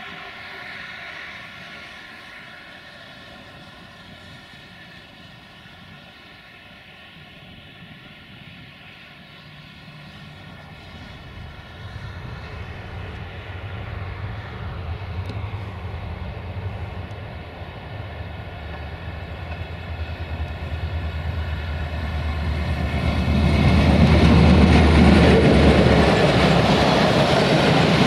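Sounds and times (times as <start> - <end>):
diesel locomotive engine drone: 0.0 - 28.0.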